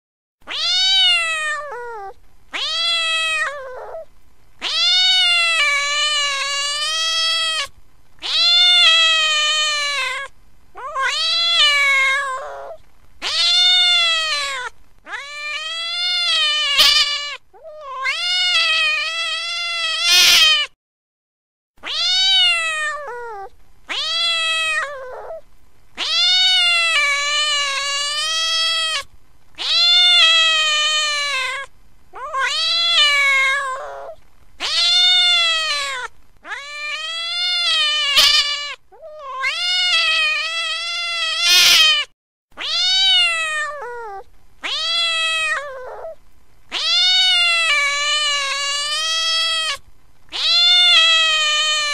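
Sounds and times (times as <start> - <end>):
cat meowing: 0.5 - 20.8, 21.8 - 25.4, 26.0 - 51.9.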